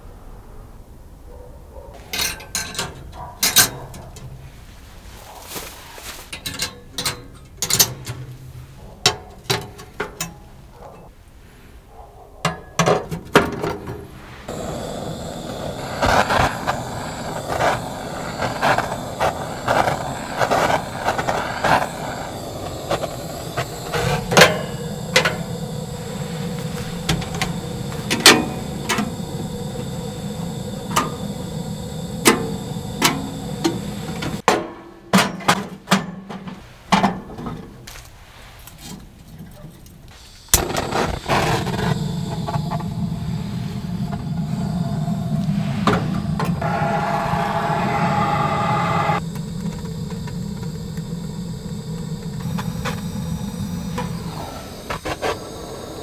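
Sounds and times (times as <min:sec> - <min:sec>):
steady background noise: 0:00.0 - 0:35.9, 0:36.5 - 0:56.0.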